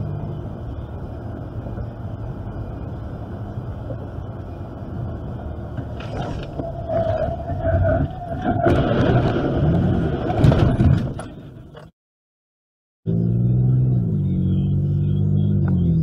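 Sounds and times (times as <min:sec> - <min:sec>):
road and engine noise inside car: 0:00.0 - 0:08.6, 0:13.1 - 0:16.0.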